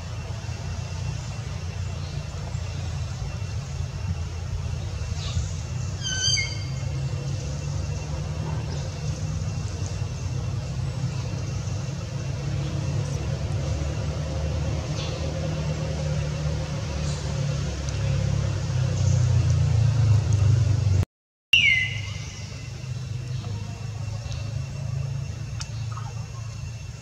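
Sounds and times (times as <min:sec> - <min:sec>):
engine idling rumble: 0:00.0 - 0:21.0, 0:21.6 - 0:27.0.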